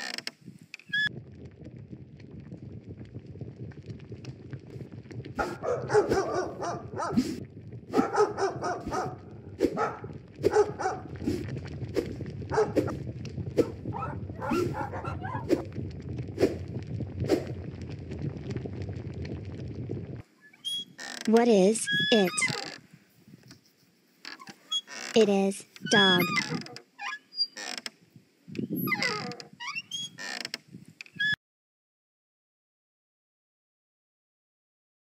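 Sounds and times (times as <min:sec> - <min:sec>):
dog barking: 0:05.4 - 0:07.3, 0:07.9 - 0:11.1, 0:12.5 - 0:12.9, 0:13.6 - 0:15.6.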